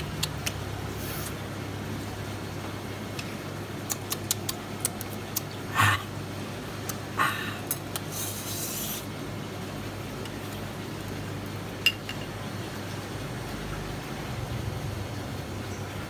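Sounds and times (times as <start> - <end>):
ceramic bowls clinking: 11.8 - 12.3.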